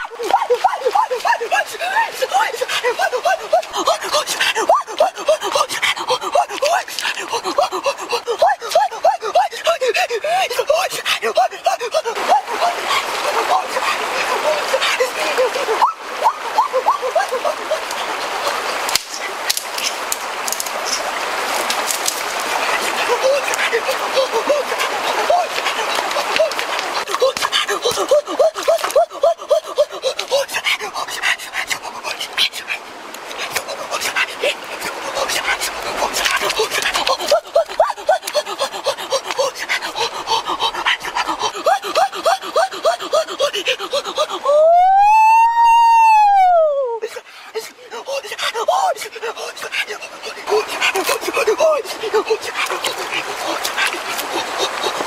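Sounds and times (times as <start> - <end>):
man crying out excitedly: 0.0 - 17.9, 23.0 - 30.5, 36.4 - 40.2, 41.5 - 47.2, 50.5 - 53.0
stream water rushing: 0.0 - 55.0
branches and leaves crackling: 18.8 - 22.6.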